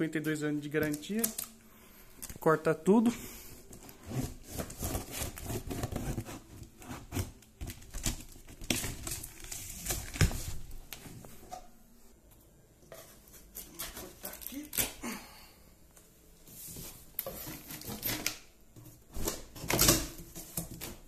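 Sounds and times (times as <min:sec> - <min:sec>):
tape tearing: 0:03.7 - 0:10.6, 0:17.2 - 0:18.5
knife cutting packing tape: 0:04.0 - 0:10.2, 0:13.5 - 0:15.0.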